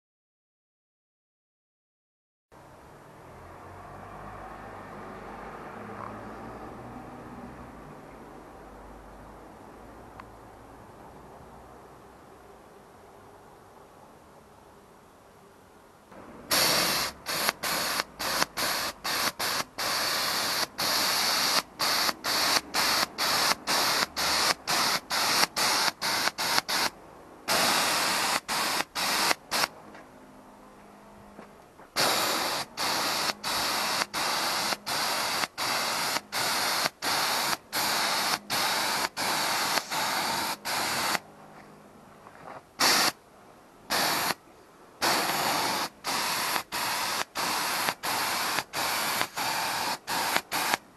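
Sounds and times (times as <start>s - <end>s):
paint spray gun hissing: 16.5s - 29.7s, 32.0s - 41.2s, 42.8s - 43.2s, 43.9s - 44.4s, 45.0s - 50.9s.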